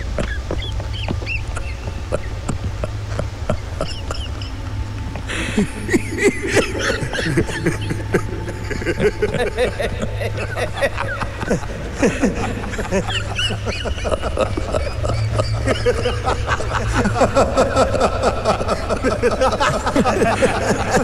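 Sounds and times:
low steady drone: 0.0s - 21.0s.

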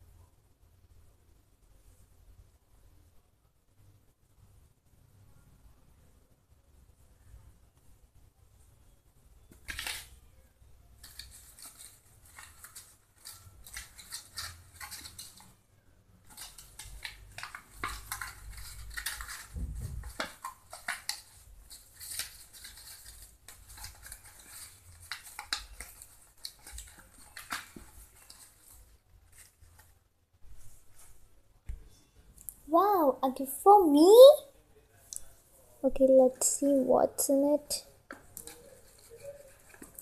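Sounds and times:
paper rustling and crinkling: 11.0s - 15.6s, 16.2s - 31.3s, 38.1s - 40.0s
dull bump: 19.5s - 20.1s.

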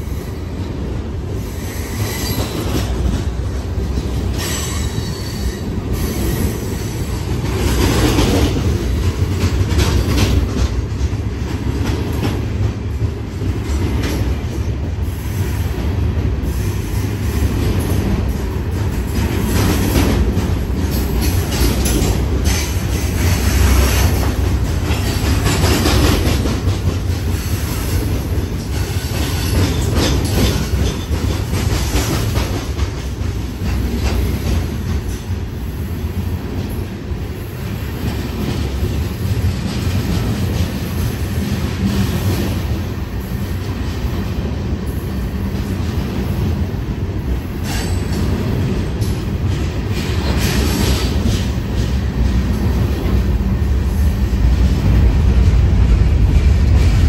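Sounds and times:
freight train rumbling past: 0.0s - 57.0s
wheels clacking over rail joints: 17.6s - 35.4s.

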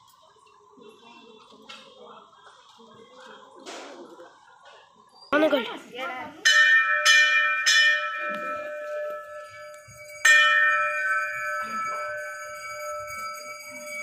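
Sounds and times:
temple bell ringing: 6.4s - 14.0s.

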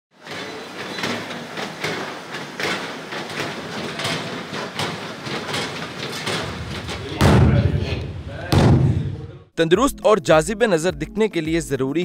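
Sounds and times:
treadmill running noise: 0.1s - 8.5s.

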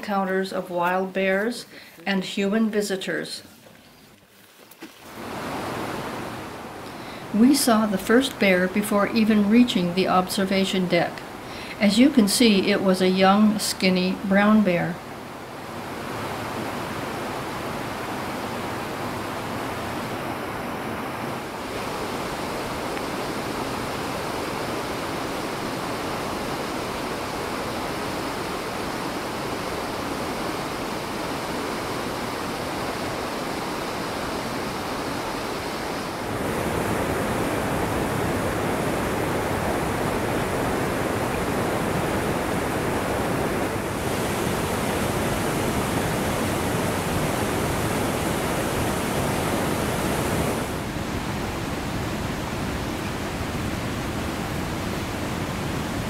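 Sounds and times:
rushing white water rapids: 5.1s - 9.0s, 15.1s - 56.0s.

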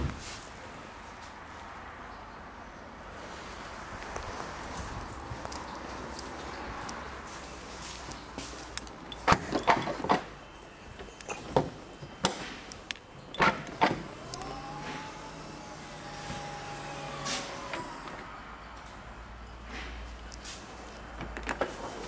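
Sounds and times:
tailgate clicks and knocks: 9.1s - 10.3s, 13.3s - 15.1s
tailgate motor whining: 13.3s - 18.3s.

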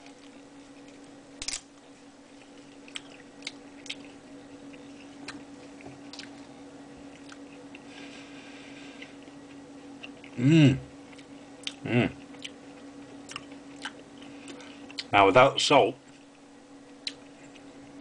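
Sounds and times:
dried chilli crunching while chewed: 0.0s - 15.1s, 16.1s - 18.0s
faint steady hum: 0.0s - 18.0s
sharp crack of bite: 1.4s - 1.7s.

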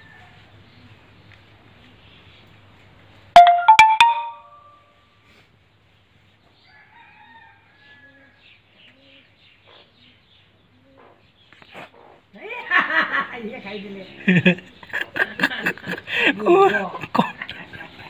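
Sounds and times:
rooster crowing: 6.7s - 8.4s.

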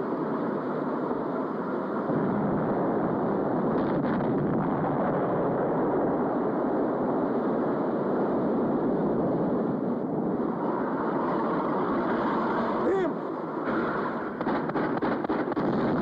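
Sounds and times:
wind: 0.0s - 16.0s
boat engine roar: 5.3s - 16.0s.

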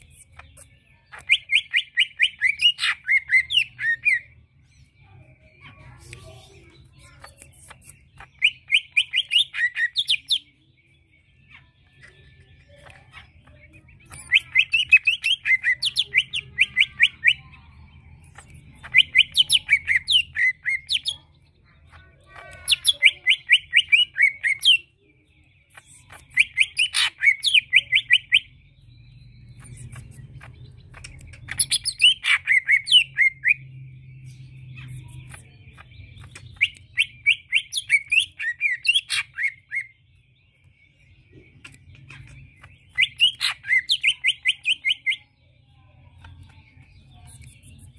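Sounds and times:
bird singing rapid sharp notes: 0.0s - 5.0s, 5.8s - 47.9s.

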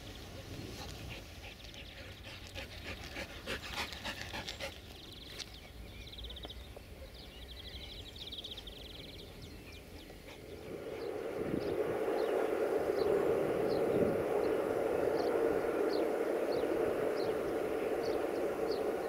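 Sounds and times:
dog panting: 0.4s - 5.3s, 9.4s - 10.7s.

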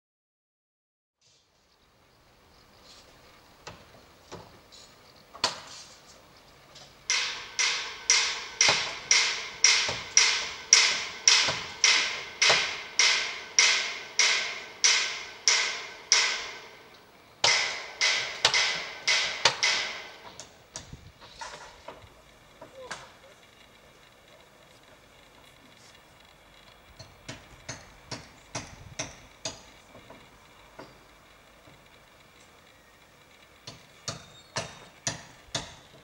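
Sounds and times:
ringing hammer blows: 7.1s - 20.5s.

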